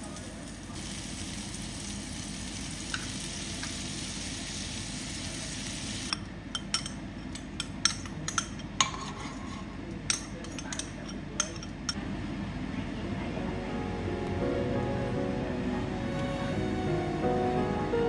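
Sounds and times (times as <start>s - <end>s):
garlic sizzling in oil: 0.0s - 6.1s.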